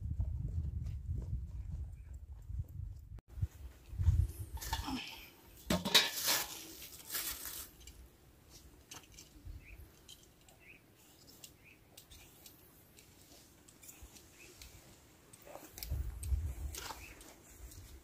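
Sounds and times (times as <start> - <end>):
steel bowl and lid clattering: 5.7 - 6.6.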